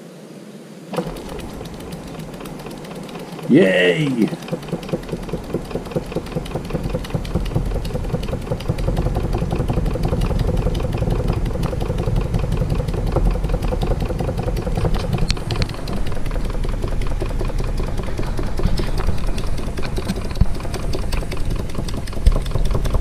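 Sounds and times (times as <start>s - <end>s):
toy steam engine chuffing: 1.0s - 23.0s.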